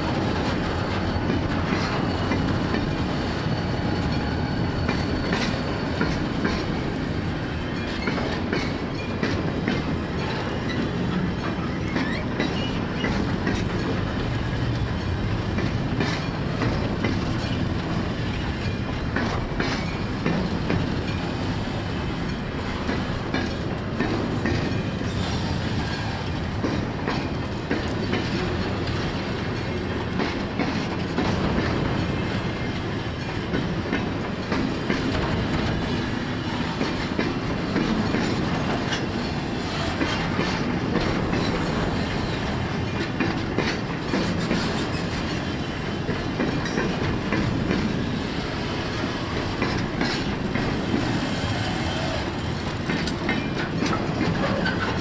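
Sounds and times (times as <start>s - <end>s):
train wheels rumbling on rail: 0.0s - 55.0s
wagon wheels and couplings clicking: 52.0s - 55.0s.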